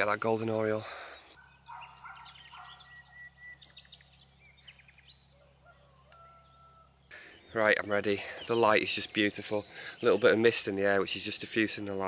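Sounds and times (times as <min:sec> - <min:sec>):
low steady hum: 0:00.0 - 0:11.9
birds chirping and trilling: 0:00.0 - 0:12.0.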